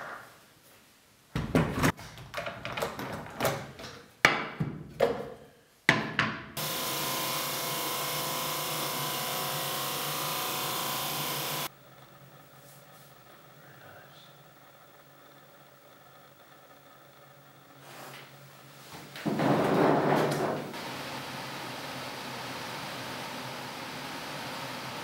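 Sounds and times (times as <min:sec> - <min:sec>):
drum sander running: 0:06.6 - 0:18.8, 0:19.4 - 0:25.0
wooden boards knocking on a table: 0:19.2 - 0:20.7.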